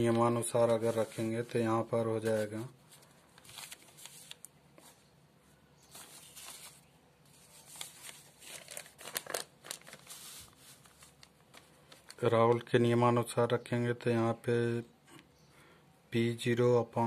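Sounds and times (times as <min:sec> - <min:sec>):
paper rustling and crinkling: 0:00.0 - 0:05.0, 0:05.8 - 0:12.6.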